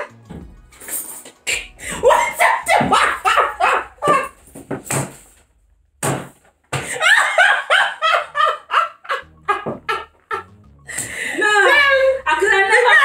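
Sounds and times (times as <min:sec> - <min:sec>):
women laughing: 0:02.8 - 0:04.4, 0:06.9 - 0:10.5.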